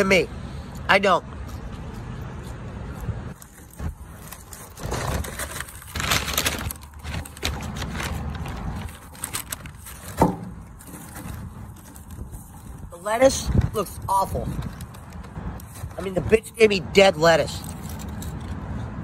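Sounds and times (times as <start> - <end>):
paper bag rustling and crinkling: 3.3 - 16.3.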